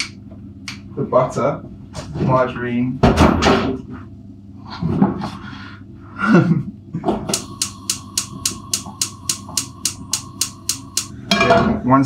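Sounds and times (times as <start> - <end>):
gas hob igniter clicking: 7.3 - 11.3
steady high tone: 7.3 - 11.8.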